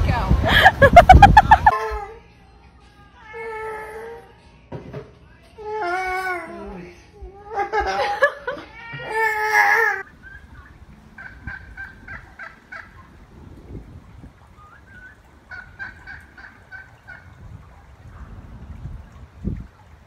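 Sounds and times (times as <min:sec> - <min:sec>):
turkeys gobbling: 0:10.0 - 0:13.4, 0:14.4 - 0:17.9.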